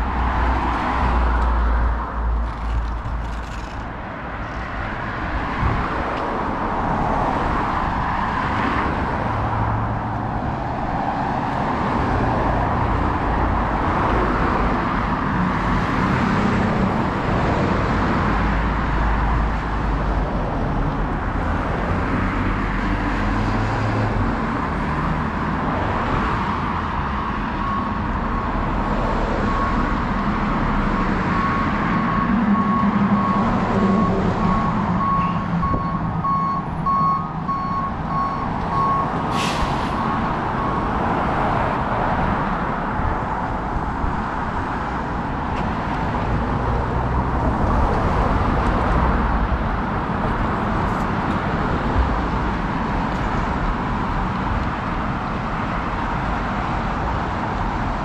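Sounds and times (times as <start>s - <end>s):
cars passing: 0.0s - 58.0s
reversing alarm beeping: 27.1s - 28.8s, 29.4s - 39.2s.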